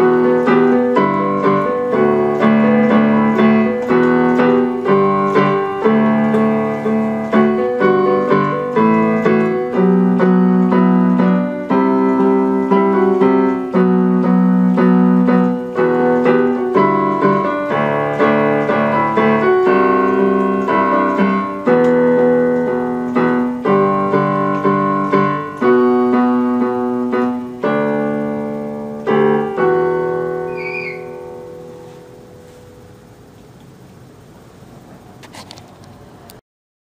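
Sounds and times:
electronic keyboard piano chords: 0:00.0 - 0:35.2.

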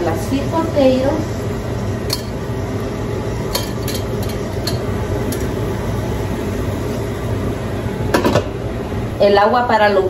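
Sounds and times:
water boiling: 0:00.0 - 0:10.0.

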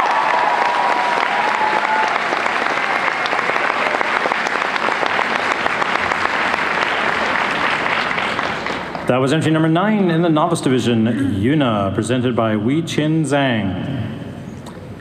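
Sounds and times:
cheering voices: 0:00.0 - 0:08.6
audience clapping: 0:00.0 - 0:09.1.

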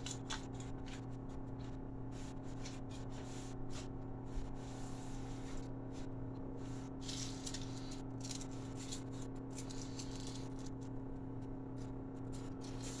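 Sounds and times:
steady low hum: 0:00.0 - 0:13.0
potato chips crackling: 0:07.0 - 0:10.8.

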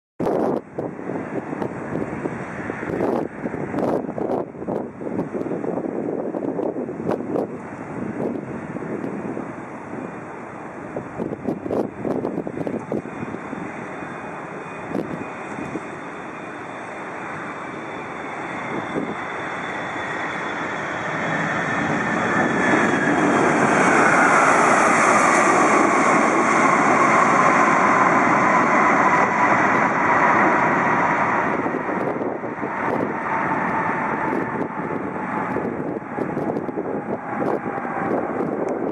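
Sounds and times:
jet airliner passing low: 0:00.2 - 0:38.9
jet engine whine falling in pitch: 0:00.2 - 0:38.9.

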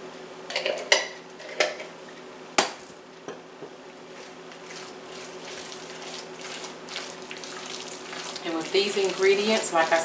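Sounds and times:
stirring in a bowl: 0:04.1 - 0:10.0.

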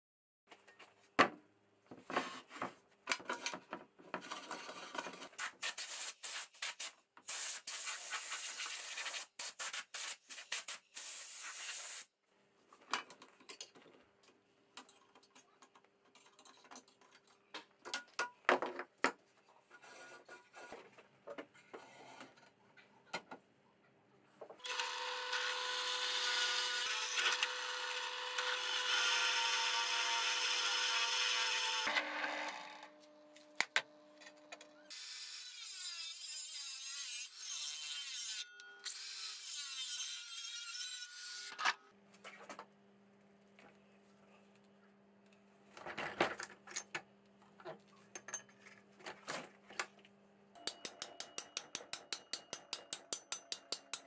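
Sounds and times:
drill bit cutting steel: 0:24.6 - 0:32.6.

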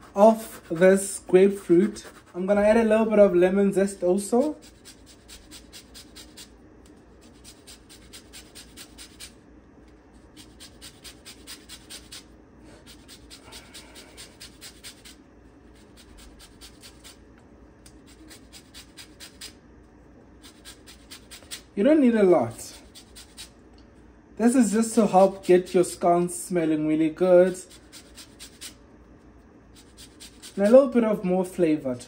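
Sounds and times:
peel scraping on grater: 0:04.4 - 0:06.5, 0:07.2 - 0:09.4, 0:10.2 - 0:17.2, 0:17.8 - 0:19.6, 0:20.4 - 0:21.7, 0:22.8 - 0:23.6, 0:25.1 - 0:26.0, 0:27.5 - 0:28.8, 0:29.7 - 0:30.8.

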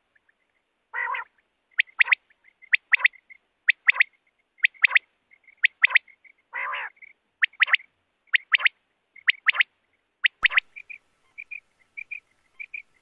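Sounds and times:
quail song: 0:00.0 - 0:13.0
harsh low bird call: 0:10.4 - 0:13.0.

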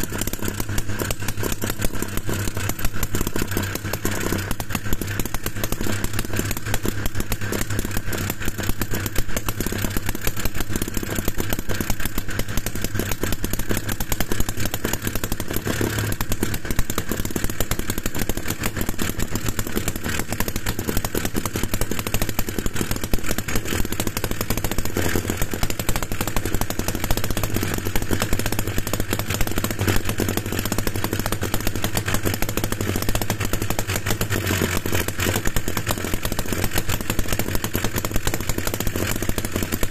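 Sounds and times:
small two-stroke engine running: 0:00.0 - 0:39.9.

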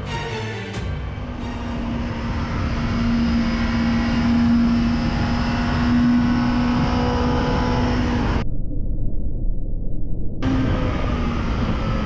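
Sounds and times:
motorcycle engine at high revs: 0:01.8 - 0:08.4, 0:10.4 - 0:12.0.

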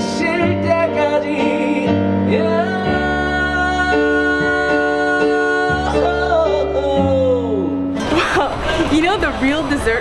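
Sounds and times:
man singing: 0:00.0 - 0:08.0.

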